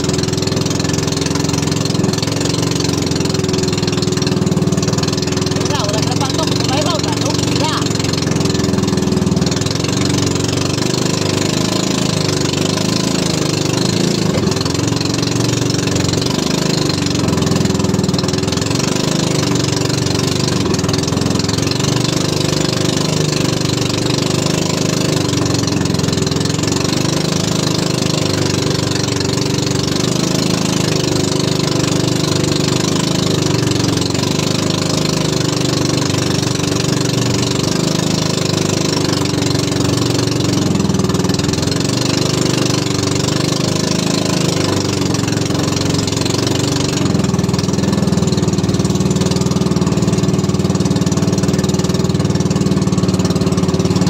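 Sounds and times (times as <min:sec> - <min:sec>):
boat engine running: 0:00.0 - 0:54.0.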